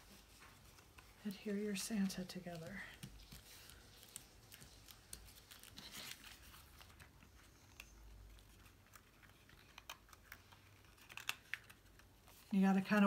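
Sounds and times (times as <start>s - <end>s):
cardstock rustling and tapping: 0.0s - 13.0s.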